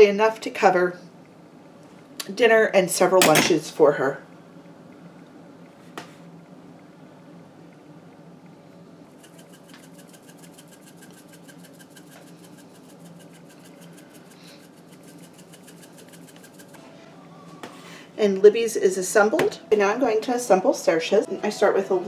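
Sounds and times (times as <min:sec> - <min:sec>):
fast rhythmic scratching: 0:09.2 - 0:16.8.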